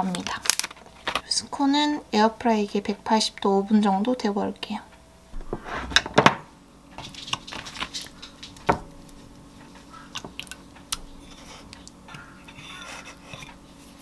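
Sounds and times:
spoon scraping yogurt: 10.2s - 14.0s.

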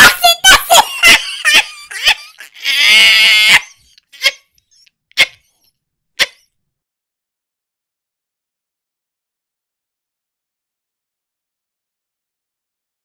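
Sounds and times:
person wailing: 0.0s - 4.4s
person yelping: 0.0s - 4.4s, 5.2s - 5.4s.

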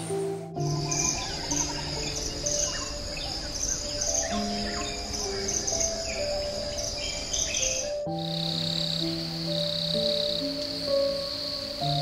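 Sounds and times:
pulsing high insect trill: 0.0s - 12.0s
soft music with held notes: 0.0s - 12.0s.

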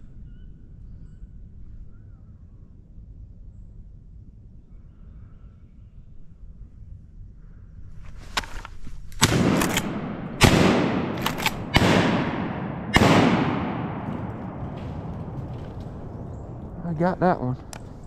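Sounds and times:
fainter sharp gunshot cracks: 9.2s - 14.6s
shotgun blasts echoing: 9.2s - 16.2s.

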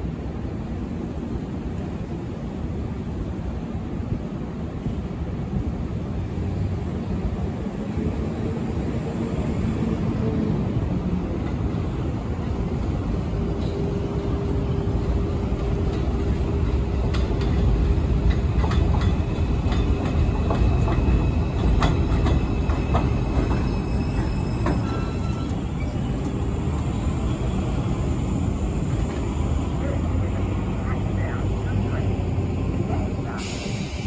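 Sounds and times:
subway train rumble: 0.0s - 34.0s
high wheel squeal: 23.0s - 26.4s.

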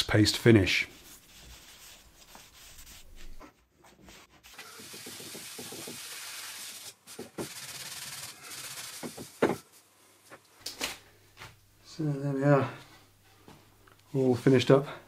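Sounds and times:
cloth pad scrubbing hiss: 1.0s - 3.4s, 4.4s - 9.9s.

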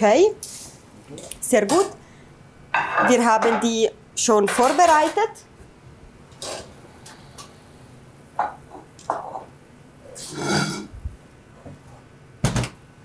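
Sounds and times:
kitchen handling clicks and knocks: 2.8s - 3.8s.

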